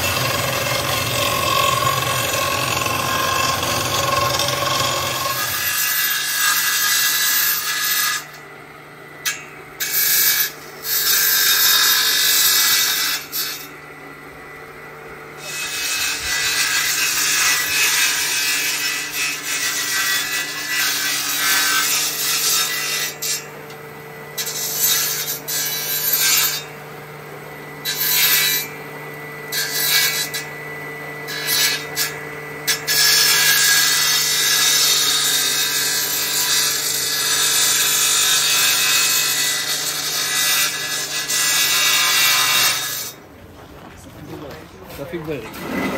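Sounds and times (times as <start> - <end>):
planer motor hum: 0.0 - 5.6, 43.9 - 45.9.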